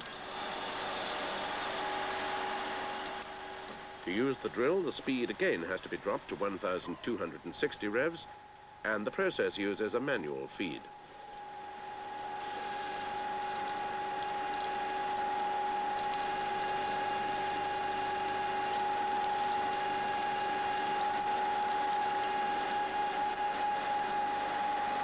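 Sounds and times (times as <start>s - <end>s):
lathe machine whine: 0.0s - 5.1s, 10.6s - 25.0s
coolant hiss: 11.7s - 25.0s.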